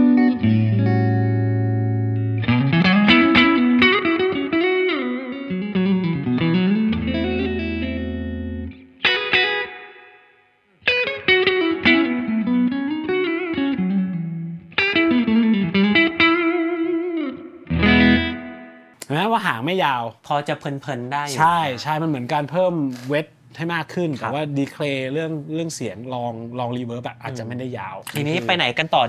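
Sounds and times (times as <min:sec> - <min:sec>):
clean electric guitar with reverb: 0:00.0 - 0:19.0.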